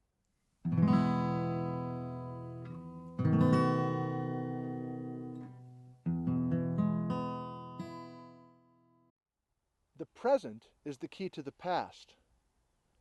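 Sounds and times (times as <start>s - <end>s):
acoustic guitar chords strummed: 0.7s - 8.6s.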